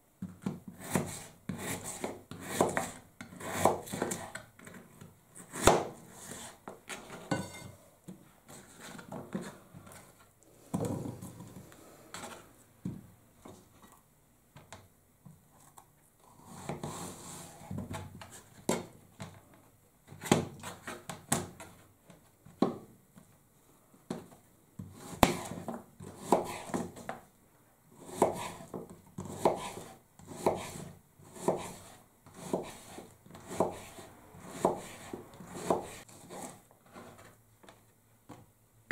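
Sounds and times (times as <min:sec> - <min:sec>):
knife chopping on plastic board: 0:00.2 - 0:04.7, 0:05.4 - 0:06.0, 0:24.9 - 0:27.1, 0:28.1 - 0:36.6.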